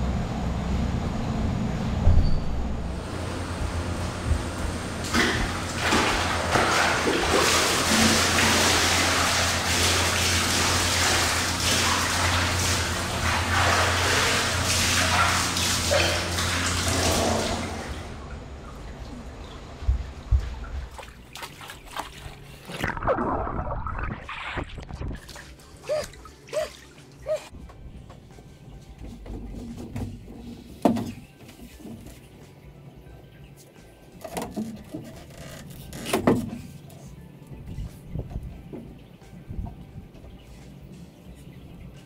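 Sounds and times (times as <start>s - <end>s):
steady low hum: 0.0s - 7.6s
water rushing and splashing: 5.0s - 18.2s.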